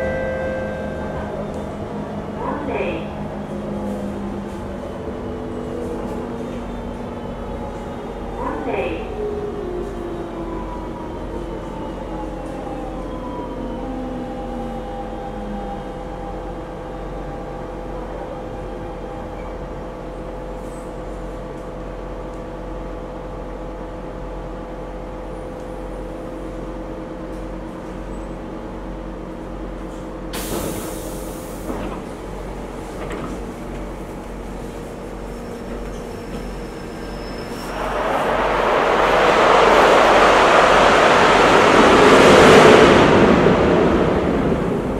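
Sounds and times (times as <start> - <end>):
train doors rushing open: 29.9 - 34.6.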